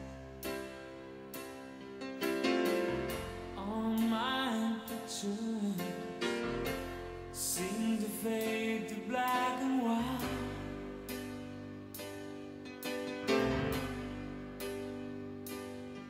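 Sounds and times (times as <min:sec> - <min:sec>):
plucked keyboard chords: 0:00.0 - 0:16.0
person singing: 0:03.6 - 0:06.4, 0:07.4 - 0:10.9.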